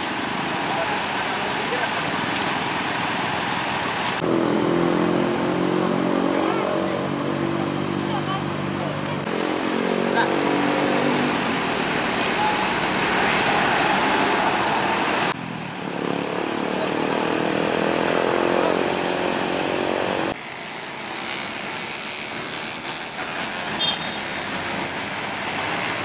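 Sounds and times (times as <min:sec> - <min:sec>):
bus engine pulling away: 0:00.0 - 0:20.4.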